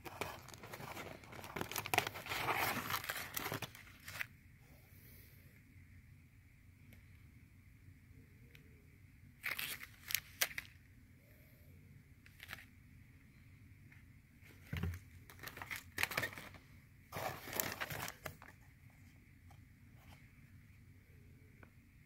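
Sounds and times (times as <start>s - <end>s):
plastic packaging crinkling: 0.0s - 4.3s, 9.4s - 10.8s, 12.3s - 12.7s, 14.7s - 18.6s.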